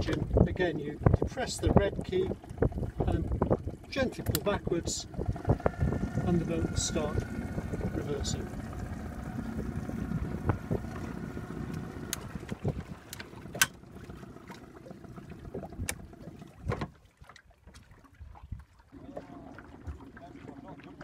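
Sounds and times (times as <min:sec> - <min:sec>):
wind on microphone: 0:00.0 - 0:13.6
outboard engine running: 0:00.0 - 0:17.9, 0:18.9 - 0:21.0
steady low hum: 0:02.3 - 0:16.5.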